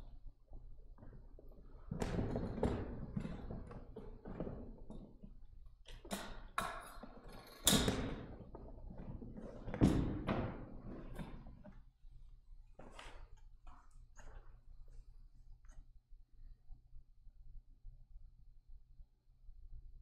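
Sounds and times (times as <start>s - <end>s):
knocks and thumps: 7.8s - 11.7s.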